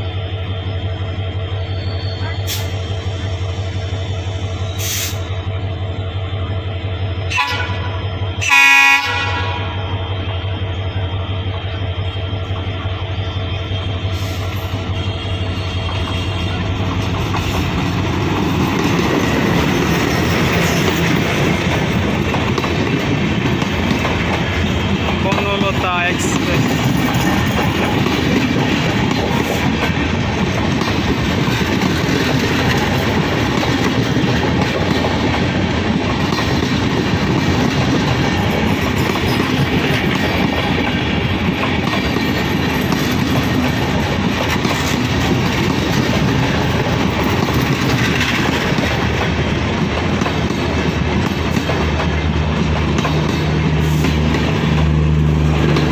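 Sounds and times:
train wheels clacking on rails: 0:13.6 - 0:55.9.

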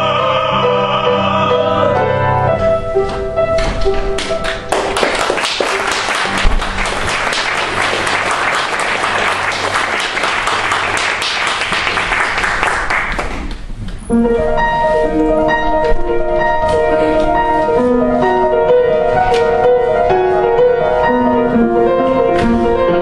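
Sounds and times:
music playing: 0:00.0 - 0:09.4, 0:14.1 - 0:23.0
audience applause: 0:04.2 - 0:13.6.

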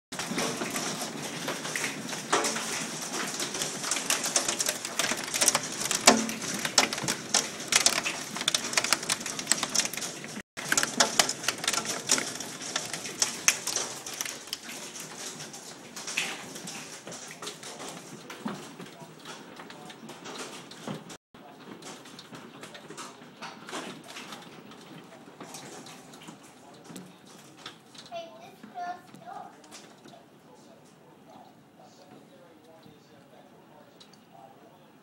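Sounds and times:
hailstones clattering: 0:00.1 - 0:30.1.

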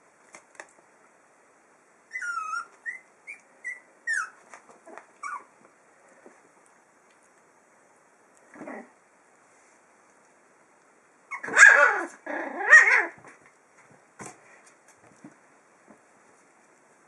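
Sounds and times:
faint scuffling and clicks: 0:00.2 - 0:00.9, 0:04.4 - 0:07.5, 0:13.2 - 0:16.9
puppy yapping barks: 0:11.3 - 0:13.2.

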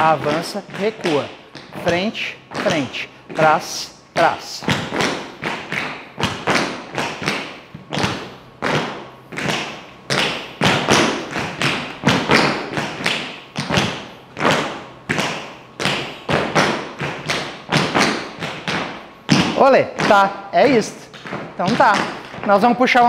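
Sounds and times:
tap shoes striking the floor: 0:00.0 - 0:23.0.

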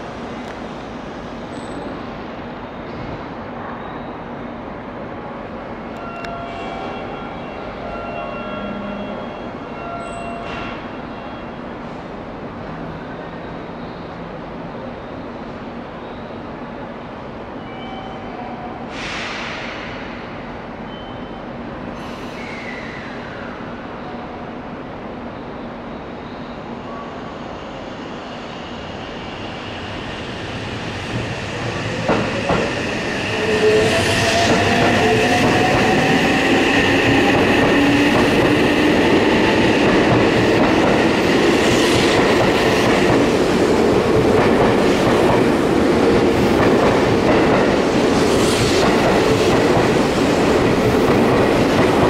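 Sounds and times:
loud hiss of air: 0:18.9 - 0:20.4, 0:21.9 - 0:23.0.

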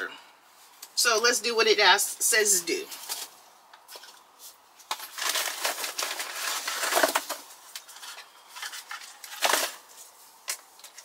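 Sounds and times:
packet rustling and crinkling: 0:02.9 - 0:11.0.

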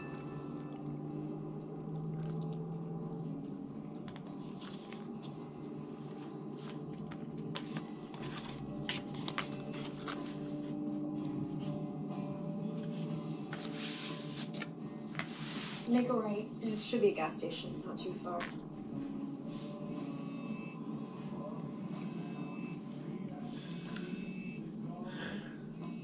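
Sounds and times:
faint steady hum: 0:00.0 - 0:26.0
chewing and mouth noises: 0:01.9 - 0:02.8.

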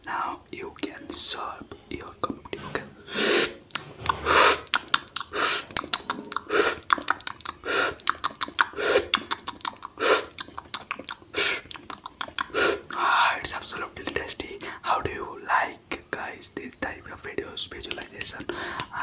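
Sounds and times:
breathy whoosh: 0:02.6 - 0:05.7
mouth clicks and pops: 0:03.7 - 0:13.0, 0:17.8 - 0:19.0.

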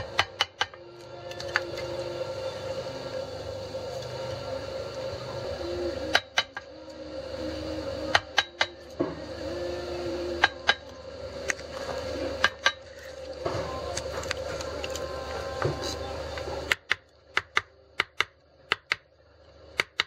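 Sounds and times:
machete chopping bamboo: 0:16.7 - 0:19.0.

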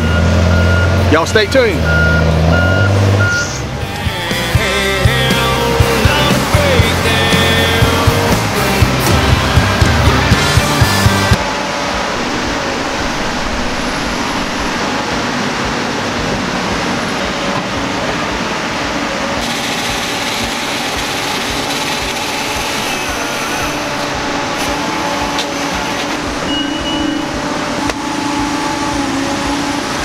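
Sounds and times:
diesel engine running: 0:00.0 - 0:30.0
saw cutting through log: 0:19.4 - 0:26.5.

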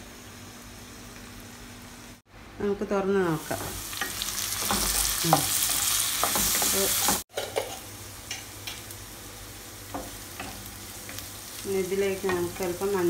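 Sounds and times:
onions sizzling in oil: 0:03.1 - 0:13.0.

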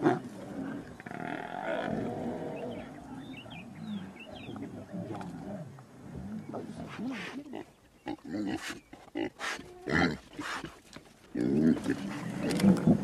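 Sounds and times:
lions growling: 0:00.0 - 0:07.4, 0:11.3 - 0:13.0.

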